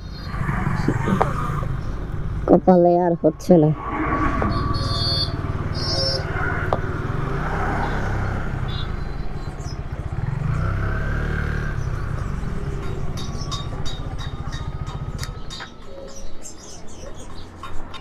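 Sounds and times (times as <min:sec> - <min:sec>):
road traffic: 0:00.0 - 0:18.0
motorcycle engine idling: 0:04.5 - 0:16.7.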